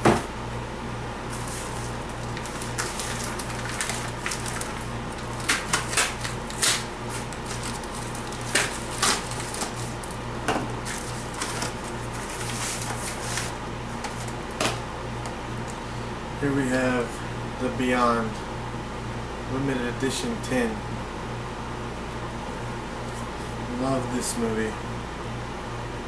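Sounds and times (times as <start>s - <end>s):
packaging crinkling and rustling: 1.3s - 10.2s, 10.8s - 14.8s
packaging snaps: 1.4s - 10.2s.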